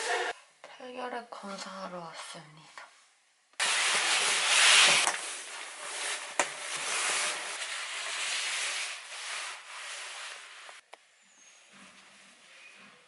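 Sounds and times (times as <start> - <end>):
padded jacket rustling: 3.6 - 10.8.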